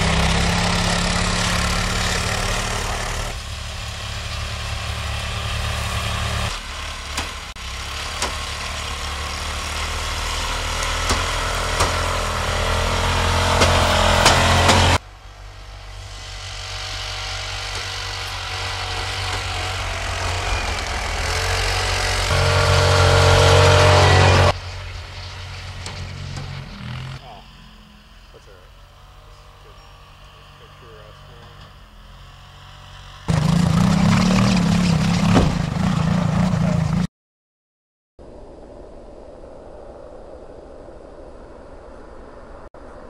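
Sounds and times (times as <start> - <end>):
vehicle engine driving through snow: 0.0 - 37.1
sharp knocks: 11.0 - 12.6, 13.2 - 15.0.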